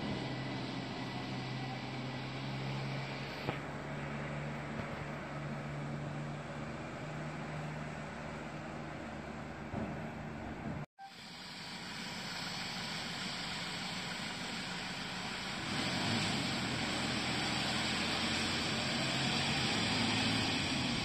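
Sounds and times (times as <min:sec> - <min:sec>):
tractor engine running: 0:00.0 - 0:21.0
steady hiss: 0:11.1 - 0:21.0.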